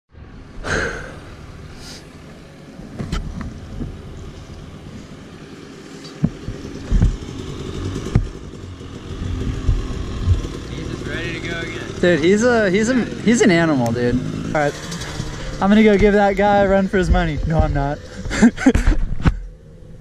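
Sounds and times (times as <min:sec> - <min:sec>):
dirt bike engines rumbling: 0:00.2 - 0:20.0
sharp knocks and thumps: 0:06.1 - 0:10.7, 0:14.1 - 0:19.5.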